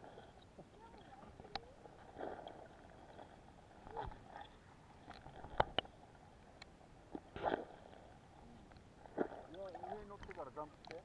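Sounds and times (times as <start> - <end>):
muffled underwater swishes: 0.0 - 11.0
sharp underwater clicks: 0.4 - 1.8, 3.9 - 5.9, 8.7 - 11.0.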